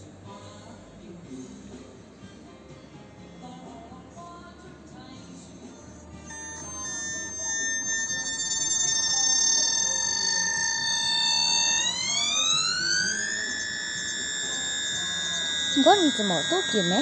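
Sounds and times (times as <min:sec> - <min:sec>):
electric train motor whine: 0:06.2 - 0:17.0.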